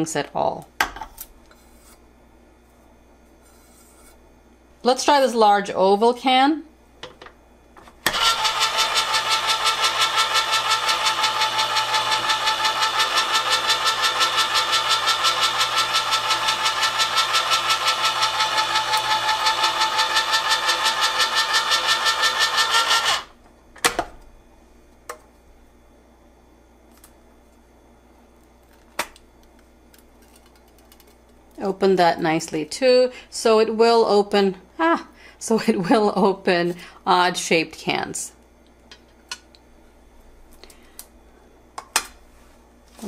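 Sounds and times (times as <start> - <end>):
electric can opener whirring: 7.8 - 23.4.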